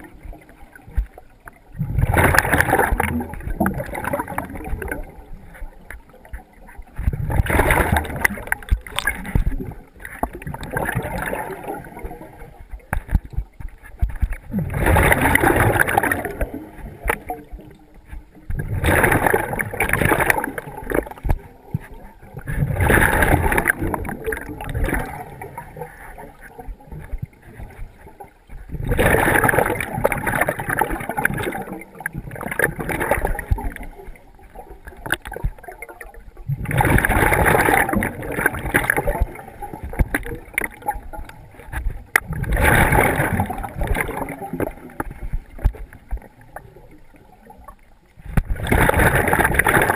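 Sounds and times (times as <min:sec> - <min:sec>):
diver exhaling bubbles: 0:14.2 - 0:34.1, 0:35.0 - 0:46.8.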